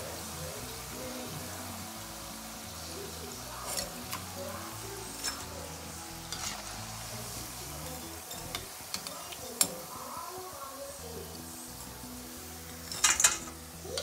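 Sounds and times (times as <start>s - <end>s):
food deep-frying in oil: 0.0s - 14.0s
metal spoon clinking on pan: 3.6s - 4.3s, 5.1s - 5.6s, 6.3s - 6.8s, 7.8s - 9.9s, 12.8s - 14.0s.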